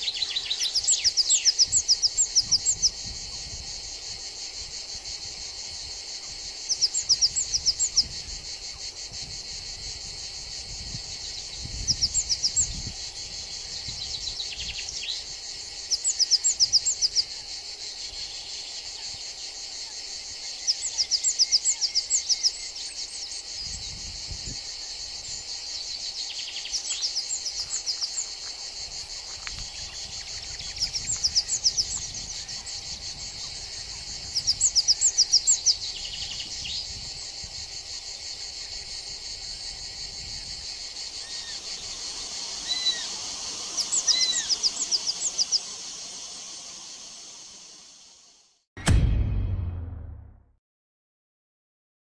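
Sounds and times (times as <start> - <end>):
insect trilling: 0.0 - 48.4
rapid sharp high chirps: 41.3 - 48.1
short falling notes: 48.8 - 50.5.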